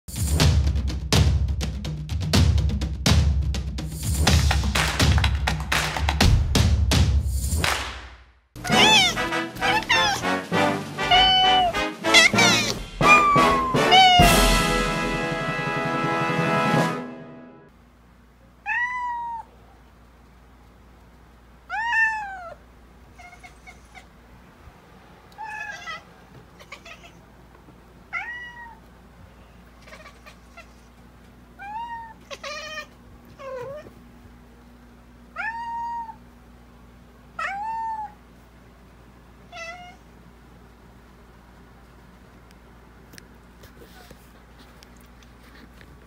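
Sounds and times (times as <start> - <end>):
cat chirps: 8.6 - 10.2, 11.0 - 14.5, 23.2 - 24.1
cat meowing: 8.6 - 10.3, 11.0 - 14.5, 18.6 - 19.6, 21.7 - 24.1, 25.3 - 27.2, 28.1 - 28.8, 29.8 - 30.9, 31.6 - 33.9, 35.4 - 36.2, 37.4 - 38.2, 39.5 - 40.1.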